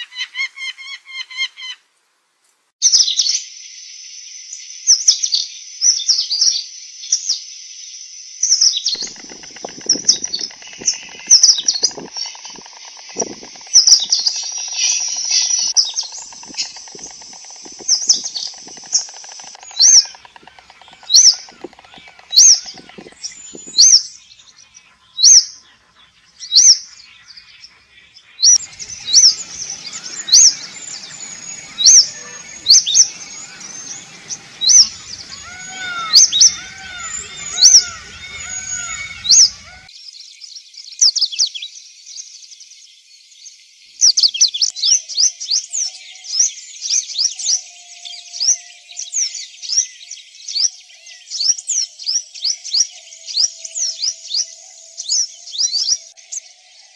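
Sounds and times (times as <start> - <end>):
twittering bird chorus: 8.9 - 39.9
bird chirping loudly: 9.0 - 24.2, 28.4 - 39.9
low whistled bird notes: 9.0 - 24.4, 28.4 - 39.9.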